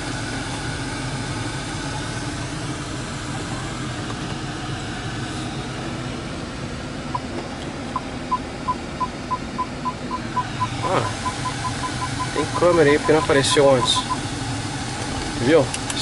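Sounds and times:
car engine idling: 0:00.0 - 0:16.0
high electronic beeps: 0:08.0 - 0:14.2.

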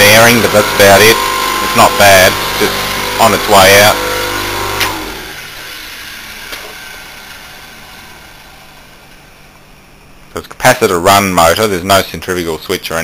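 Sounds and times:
electric motor humming: 0:00.0 - 0:09.0
motor whir coasting down: 0:00.0 - 0:09.2.

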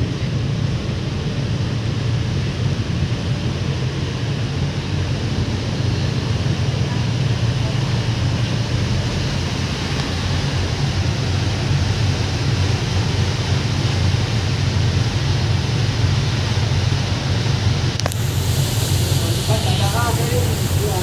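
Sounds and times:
engine drone: 0:00.0 - 0:21.0
rushing noise: 0:00.0 - 0:21.0
short click: 0:18.0 - 0:18.2.

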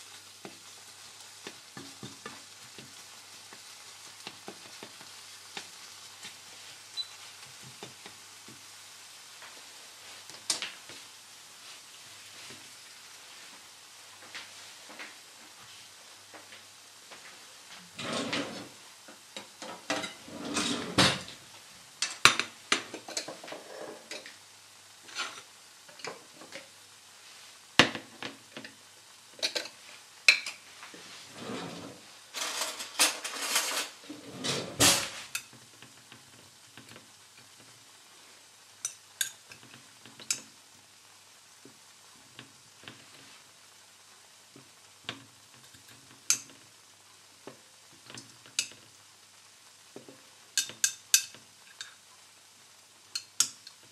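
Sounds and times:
dishes clinking and clattering: 0:17.9 - 0:18.8, 0:19.4 - 0:21.4, 0:22.0 - 0:24.3, 0:31.3 - 0:35.6.

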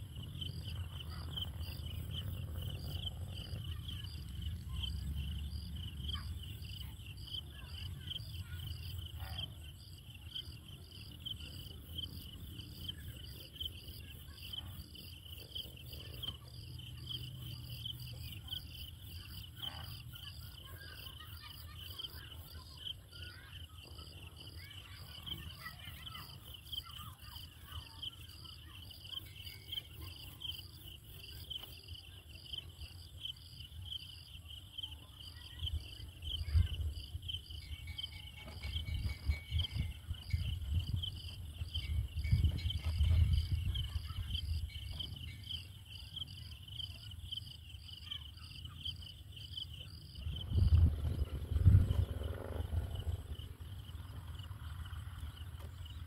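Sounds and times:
insects chirping trill: 0:00.0 - 0:56.0
low rumble: 0:50.3 - 0:55.1.

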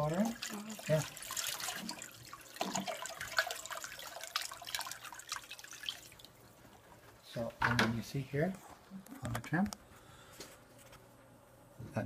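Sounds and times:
sharp water drips: 0:00.0 - 0:06.4
water pouring into aquarium: 0:00.0 - 0:06.6.

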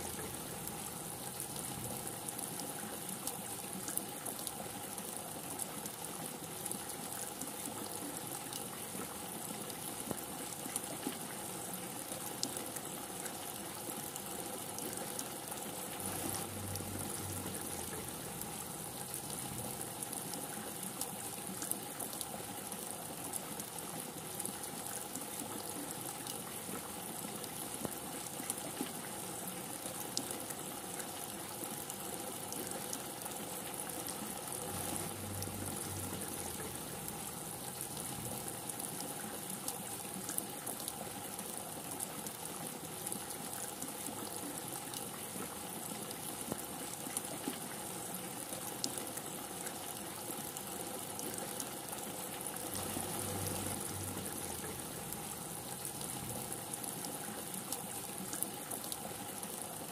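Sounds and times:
rain falling: 0:00.0 - 0:59.9
faint low rumble: 0:16.0 - 0:20.0, 0:34.6 - 0:38.7, 0:52.8 - 0:56.6.

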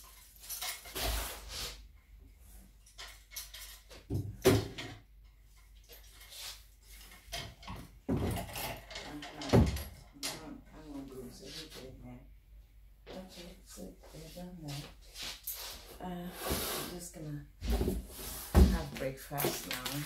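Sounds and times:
plastic hangers clattering: 0:00.0 - 0:01.3, 0:02.9 - 0:04.0, 0:05.8 - 0:10.0, 0:19.0 - 0:20.0.

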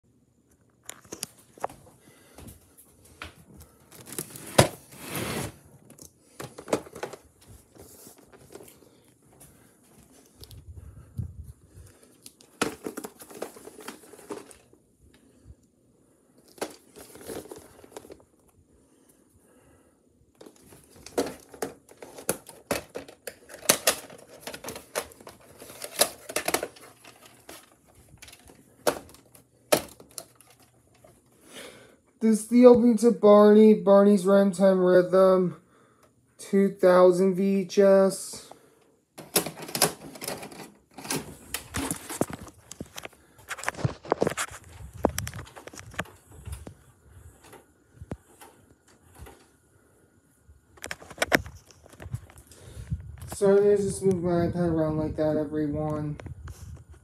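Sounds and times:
hand rustling on plastic cases: 0:00.9 - 0:15.5, 0:16.2 - 0:19.7, 0:20.3 - 0:31.8, 0:37.9 - 0:49.6
plastic cases clicking: 0:05.8 - 0:07.3, 0:12.1 - 0:14.7, 0:16.4 - 0:18.2, 0:20.4 - 0:31.3, 0:39.2 - 0:46.8.

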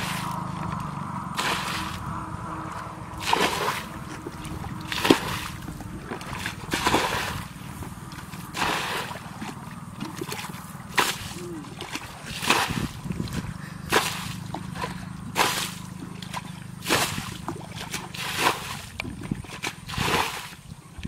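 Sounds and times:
water splashing from bucket: 0:00.0 - 0:02.2, 0:02.8 - 0:20.7.

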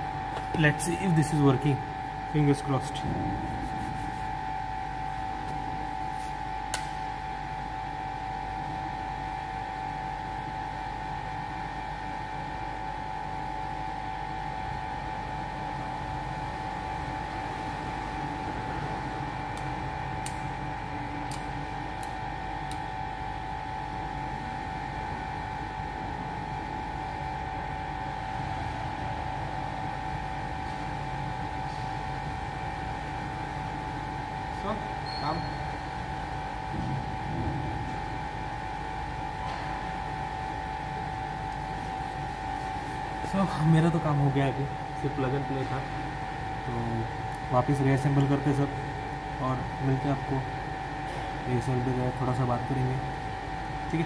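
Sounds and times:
high whine: 0:00.0 - 0:07.2
machine hum: 0:00.0 - 0:54.0.

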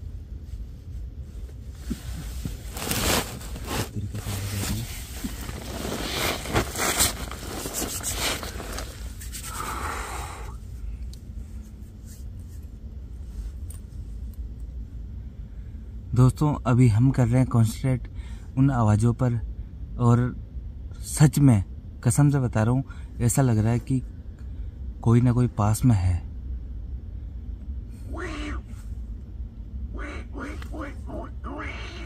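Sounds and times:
steady low rumble: 0:00.0 - 0:32.0
rustling and scraping: 0:00.4 - 0:09.7, 0:11.4 - 0:14.2.

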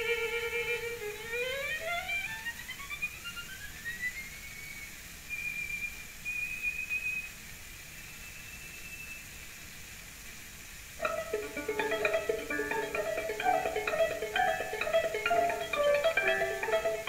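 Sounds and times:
record surface hiss: 0:00.0 - 0:17.0
high bowed string note: 0:11.0 - 0:17.0
plucked string notes: 0:11.0 - 0:17.0.

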